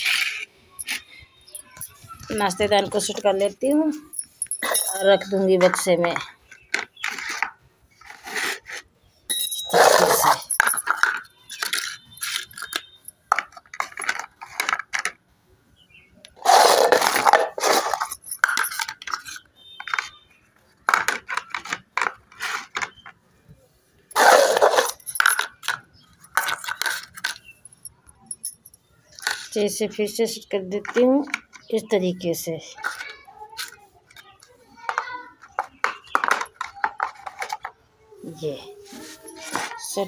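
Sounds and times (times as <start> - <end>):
plastic bowls clattering: 4.5 - 15.2, 16.3 - 20.2, 20.8 - 23.2, 24.1 - 27.5, 30.6 - 31.9, 32.8 - 40.0.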